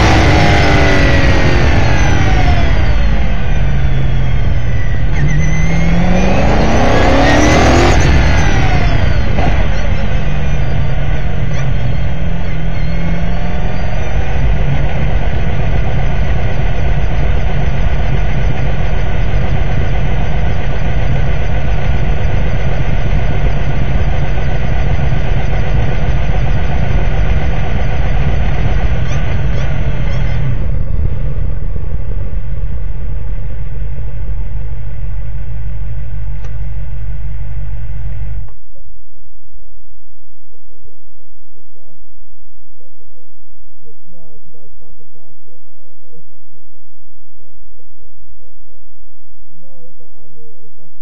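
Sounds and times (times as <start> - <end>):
race car engine revving: 0.0 - 38.5
low rumble: 0.0 - 51.0.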